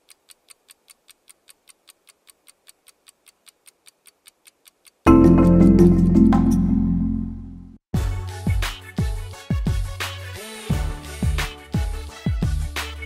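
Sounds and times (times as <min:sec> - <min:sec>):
clock-like ticking: 0:00.0 - 0:06.6
deep musical hit: 0:05.1 - 0:08.1.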